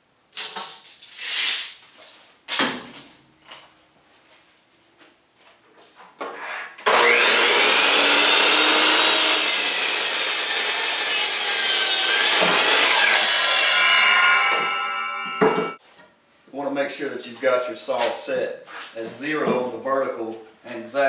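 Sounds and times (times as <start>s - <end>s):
saw cutting through wood: 6.8s - 15.8s
miter saw motor whine: 6.9s - 11.3s
saw blade spinning down: 6.9s - 15.8s.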